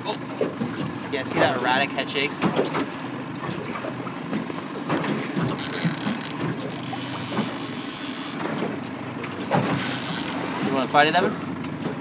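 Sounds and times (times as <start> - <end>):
boat motor humming: 0.0 - 12.0
fishing reel clicking and whirring: 5.5 - 8.4, 9.6 - 10.4.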